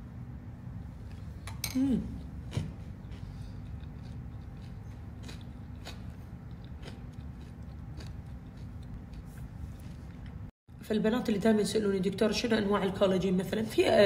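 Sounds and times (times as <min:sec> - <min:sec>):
person chewing: 0:02.2 - 0:10.5.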